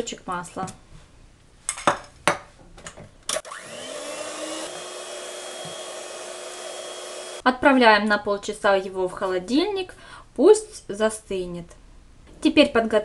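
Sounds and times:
electric hand mixer whining: 0:03.4 - 0:07.4.

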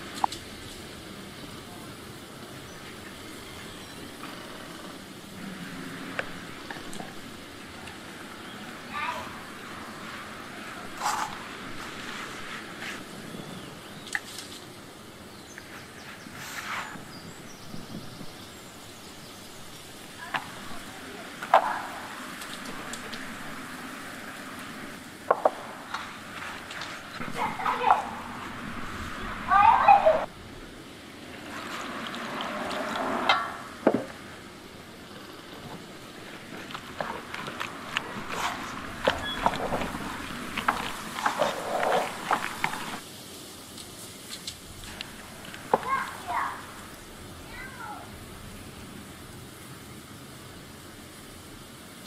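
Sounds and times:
wood knocking on metal bowl: 0:25.3 - 0:25.7
dough squelching: 0:35.9 - 0:43.0
spatula stirring mixture in bowl: 0:36.6 - 0:43.0.

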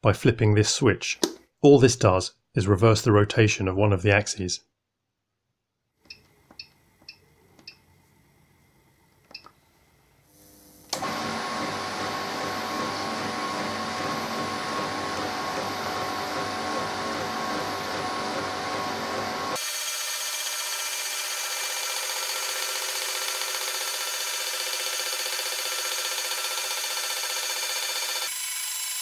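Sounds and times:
stepper drives running: 0:11.0 - 0:19.6
gear shaper machining: 0:11.0 - 0:29.0.

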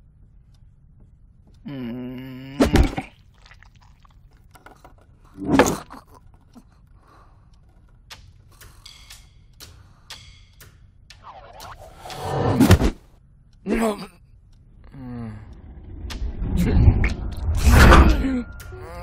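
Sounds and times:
light clicks and ticks: 0:06.0 - 0:12.2, 0:13.4 - 0:17.6.

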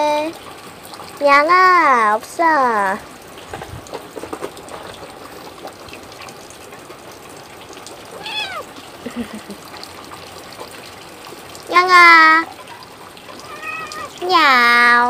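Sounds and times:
rain: 0:00.0 - 0:15.0
cat meowing: 0:08.2 - 0:08.8, 0:13.4 - 0:14.2.

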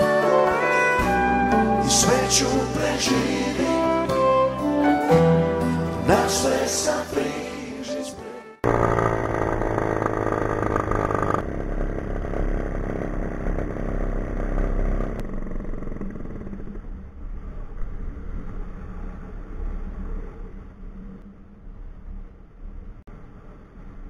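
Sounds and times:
engine and propeller running: 0:08.6 - 0:21.3.

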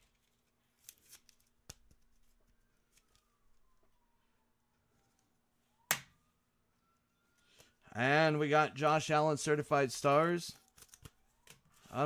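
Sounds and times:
soft rustle of card: 0:00.0 - 0:05.4, 0:10.5 - 0:12.0.

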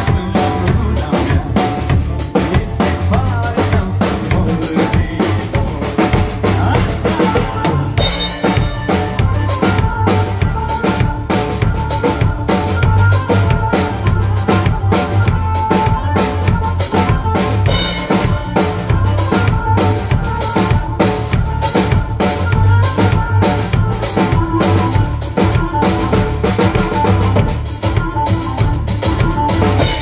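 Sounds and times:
drum kit groove: 0:00.0 - 0:30.0
pitched song music: 0:00.0 - 0:30.0.

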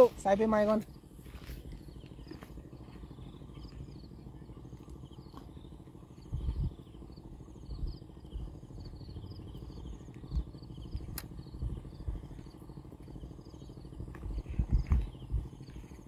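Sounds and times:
insects chirping: 0:00.0 - 0:16.0
low rumble and microphone bumps: 0:05.1 - 0:12.6, 0:13.4 - 0:16.0.

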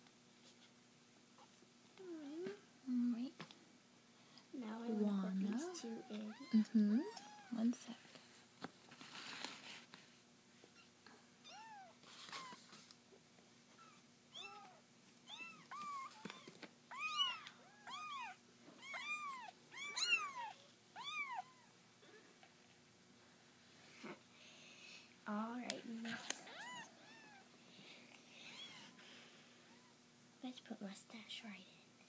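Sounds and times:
kitten meowing: 0:11.4 - 0:12.5, 0:13.8 - 0:21.7.

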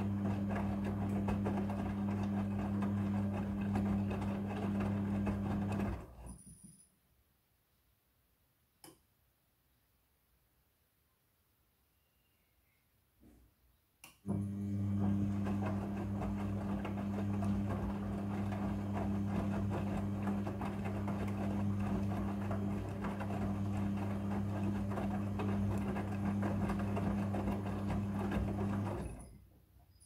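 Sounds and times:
washing machine motor hum: 0:00.0 - 0:06.3, 0:14.2 - 0:30.0.

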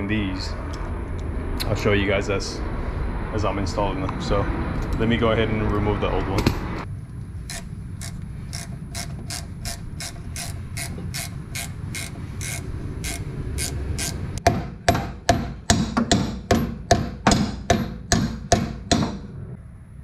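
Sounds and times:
ratchet wrench clicking: 0:07.5 - 0:14.4.

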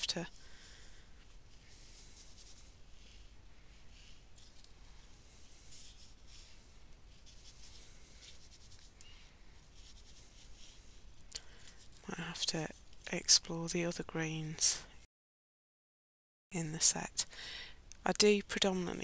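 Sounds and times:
paintbrush brushing on fabric: 0:01.0 - 0:11.2.

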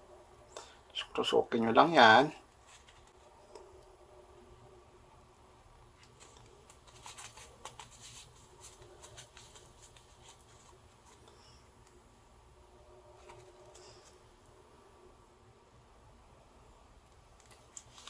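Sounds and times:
fabric rustling and scraping: 0:02.5 - 0:03.4.

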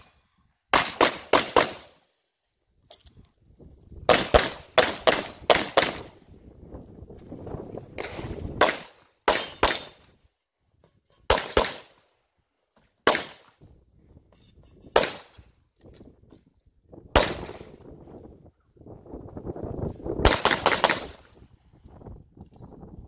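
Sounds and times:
handgun shots echoing: 0:13.0 - 0:13.5.

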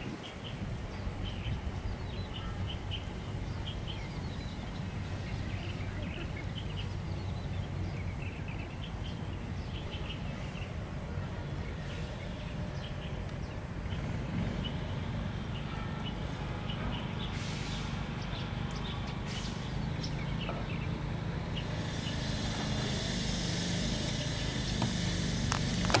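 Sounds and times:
traffic rumble: 0:00.0 - 0:26.0
vehicle approaching hiss: 0:00.0 - 0:26.0.

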